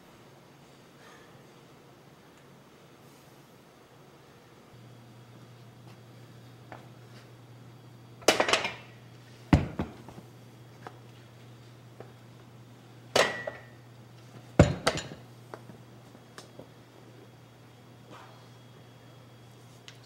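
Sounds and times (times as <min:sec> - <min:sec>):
dumbbells set down on floor: 0:14.6 - 0:15.2.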